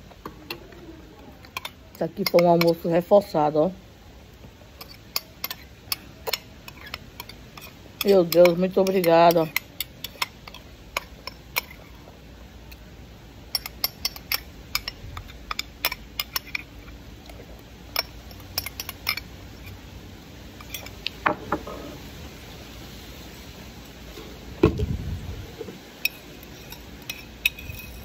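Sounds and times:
metal spoon clinking on glass bowl: 0:01.5 - 0:03.0, 0:04.8 - 0:11.8, 0:13.5 - 0:16.7, 0:17.9 - 0:19.3, 0:26.0 - 0:28.0.

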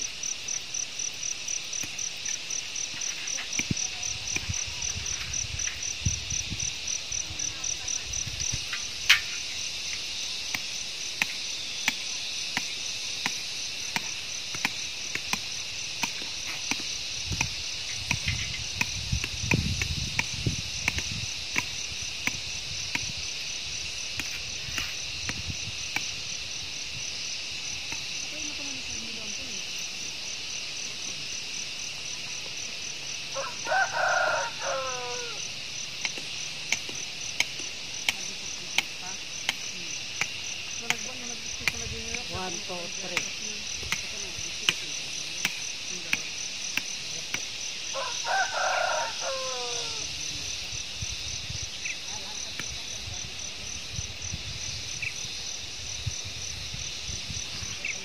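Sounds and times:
insects trilling: 0:00.0 - 0:58.0.

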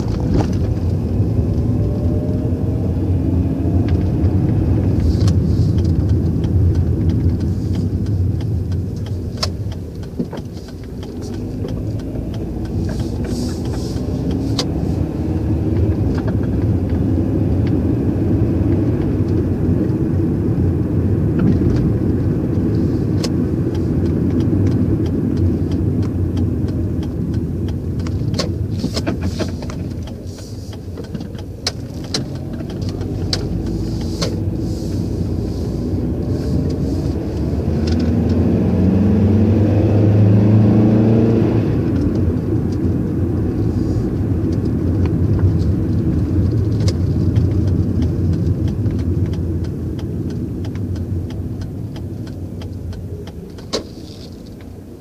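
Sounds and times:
car engine rumble: 0:00.0 - 0:55.0.

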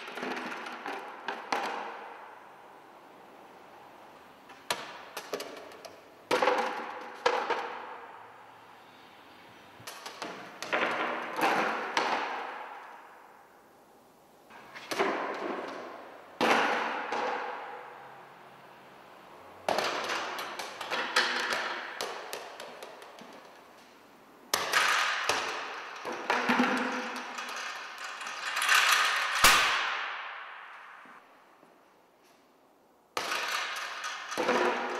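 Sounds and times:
plastic and metal objects clattering: 0:24.6 - 0:29.6.

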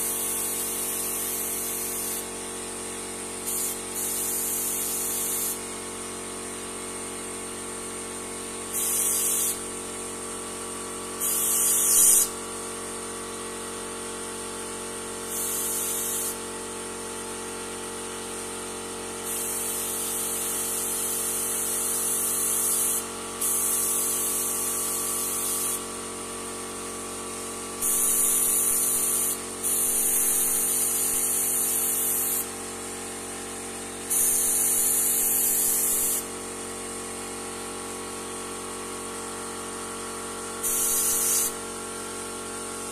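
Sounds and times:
airbrush spraying hiss: 0:00.0 - 0:02.3, 0:03.4 - 0:05.6, 0:08.7 - 0:09.7, 0:11.2 - 0:12.4, 0:15.3 - 0:16.4, 0:19.2 - 0:20.8, 0:21.4 - 0:25.9, 0:27.8 - 0:32.5, 0:34.1 - 0:36.3, 0:40.6 - 0:41.6
steady mechanical hum: 0:00.0 - 0:36.7.

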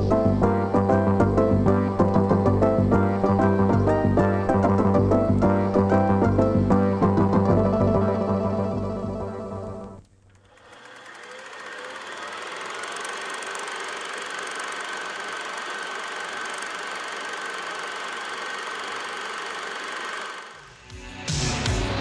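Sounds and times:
music: 0:00.0 - 0:10.0, 0:20.6 - 0:22.0
film projector clattering: 0:10.1 - 0:20.8.

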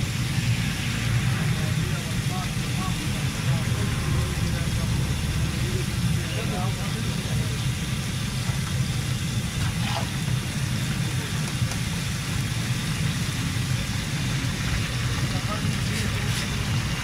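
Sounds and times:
low rumble: 0:00.0 - 0:11.3
fish sizzling in hot oil: 0:00.0 - 0:17.0.

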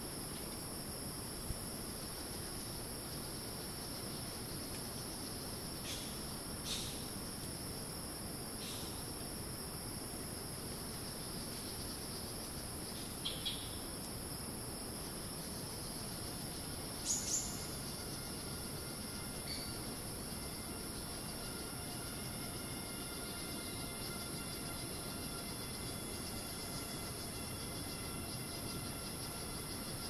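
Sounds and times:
insects droning: 0:00.0 - 0:30.0.

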